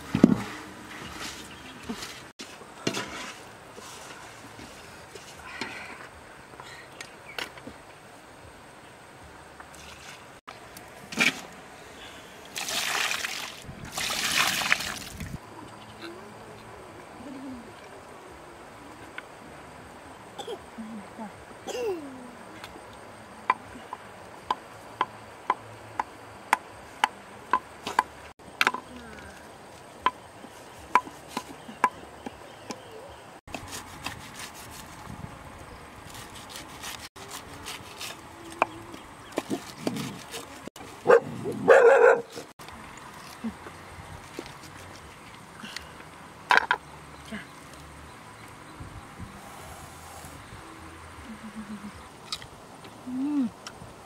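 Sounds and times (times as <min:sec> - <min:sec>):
rubbing and scraping: 0:00.0 - 0:05.4, 0:33.5 - 0:35.2, 0:36.0 - 0:38.6, 0:39.3 - 0:41.0
water splashing: 0:12.5 - 0:15.4.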